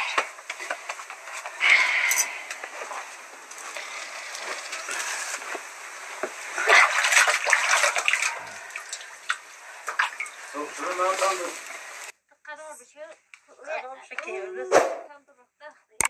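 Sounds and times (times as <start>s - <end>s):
wet dough splashing: 6.6s - 10.5s.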